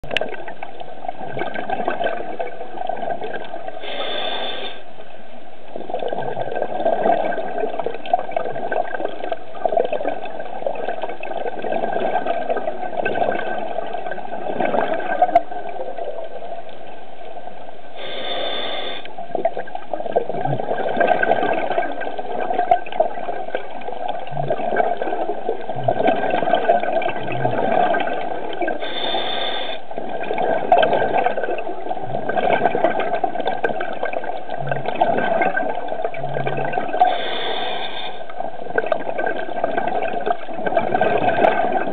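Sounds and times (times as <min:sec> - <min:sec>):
underwater bubbling: 0:00.0 - 0:41.9
regulator hiss on inhale: 0:03.8 - 0:05.1, 0:17.9 - 0:19.2, 0:28.8 - 0:29.9, 0:37.0 - 0:38.3.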